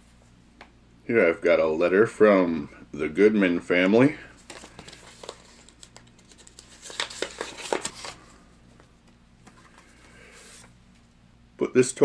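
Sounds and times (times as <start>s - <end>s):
paper rustling and crinkling: 4.4s - 8.4s.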